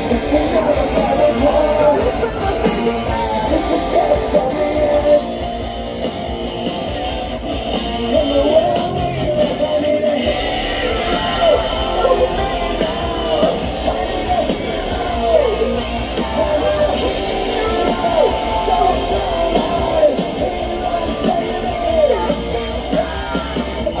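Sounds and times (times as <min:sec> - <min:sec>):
person shouting and singing: 0:00.0 - 0:05.4, 0:07.8 - 0:24.0
distorted electric guitars: 0:00.0 - 0:24.0
drums: 0:00.0 - 0:24.0.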